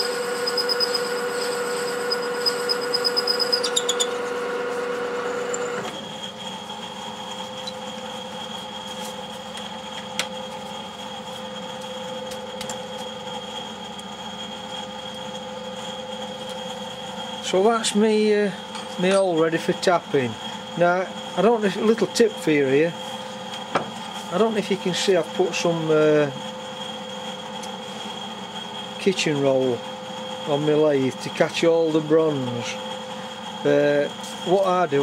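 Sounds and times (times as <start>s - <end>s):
high cutting squeal: 0.0s - 5.8s
lathe machine hum: 0.0s - 35.0s
lathe steady whine: 0.0s - 35.0s.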